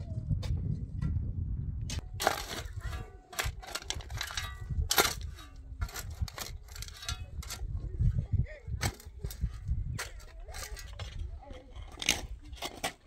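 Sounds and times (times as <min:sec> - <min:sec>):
spade scraping stony soil: 0:02.0 - 0:08.0, 0:08.8 - 0:13.0.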